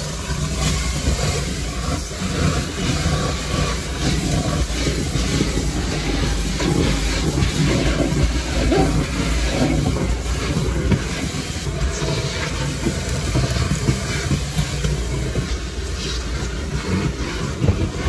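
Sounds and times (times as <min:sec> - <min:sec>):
vacuum cleaner running: 0:00.0 - 0:18.0.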